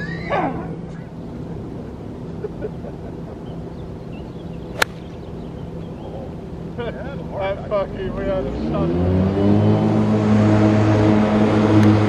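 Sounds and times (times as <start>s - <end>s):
low background hum: 0.0s - 8.5s
golf club striking ball: 4.7s - 5.3s.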